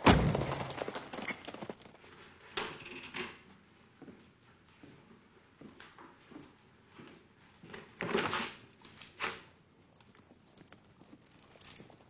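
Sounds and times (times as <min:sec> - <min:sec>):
horse hooves in the street: 0:09.8 - 0:12.0.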